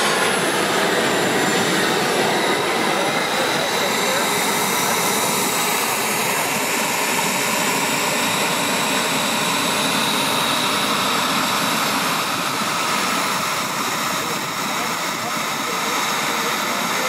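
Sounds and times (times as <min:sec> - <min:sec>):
model jet turbine whining: 0:00.0 - 0:17.0.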